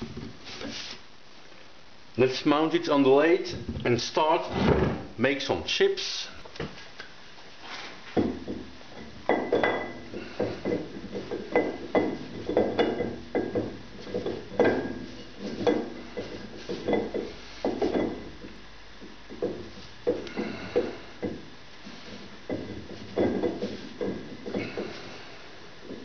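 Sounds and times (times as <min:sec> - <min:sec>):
metallic clinks and knocks: 0:08.2 - 0:25.1.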